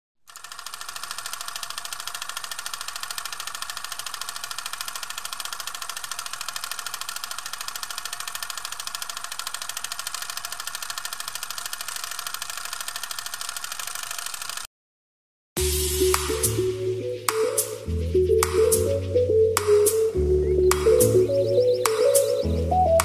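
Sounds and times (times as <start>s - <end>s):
fast mechanical ticking clatter: 0.3s - 14.7s.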